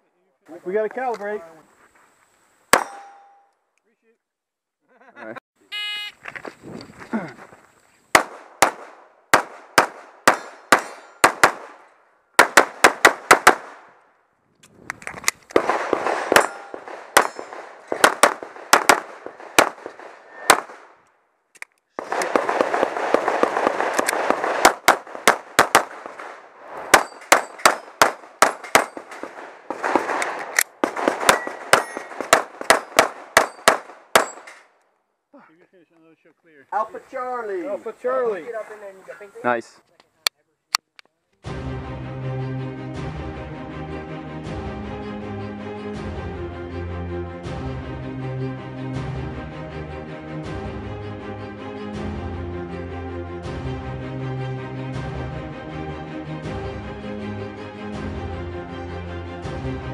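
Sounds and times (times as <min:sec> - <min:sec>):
pistol shots in rapid strings: 0:08.2 - 0:11.8, 0:12.4 - 0:13.9, 0:15.6 - 0:20.9, 0:22.0 - 0:34.4.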